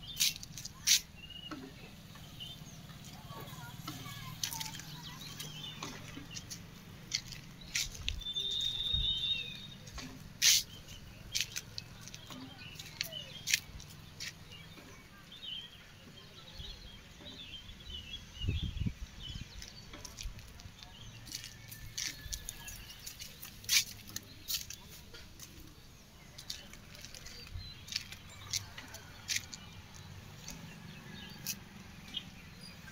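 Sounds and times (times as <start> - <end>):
faint bird chirps: 7.9 - 11.6.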